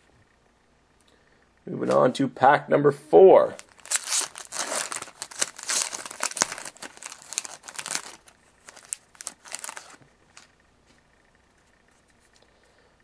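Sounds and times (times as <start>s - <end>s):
foil wrapper crinkling: 3.5s - 10.5s.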